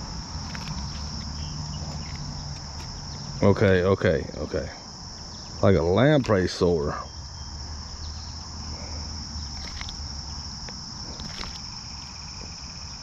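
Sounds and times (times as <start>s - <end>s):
high-pitched insect drone: 0.0s - 13.0s.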